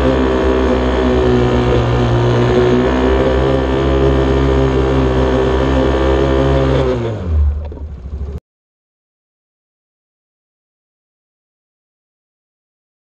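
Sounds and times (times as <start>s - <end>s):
atv engine running: 0.0s - 8.4s.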